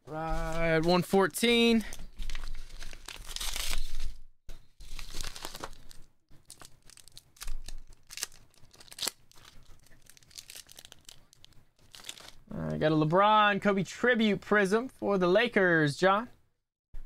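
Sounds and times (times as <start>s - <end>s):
paper and plastic rustling: 0.3s - 4.2s, 4.8s - 12.4s.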